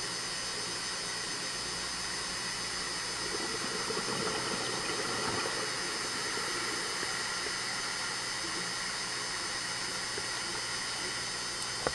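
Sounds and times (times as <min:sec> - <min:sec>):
underwater hiss: 0:02.8 - 0:11.2.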